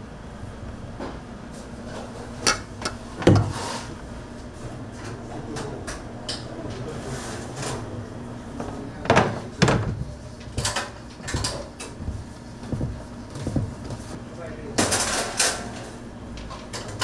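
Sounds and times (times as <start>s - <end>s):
low machine hum: 0.0s - 17.0s
baking equipment clattering: 1.9s - 4.0s, 8.6s - 14.2s, 14.8s - 17.0s.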